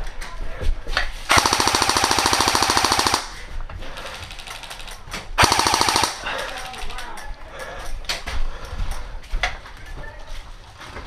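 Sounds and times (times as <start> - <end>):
airsoft rifle firing: 1.3 - 3.4, 5.4 - 6.9.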